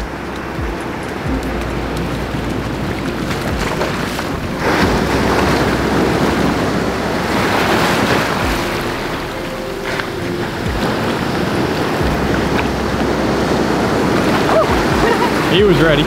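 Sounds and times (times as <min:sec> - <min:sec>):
ocean waves on beach: 0:00.0 - 0:16.0
wind on microphone: 0:00.0 - 0:16.0.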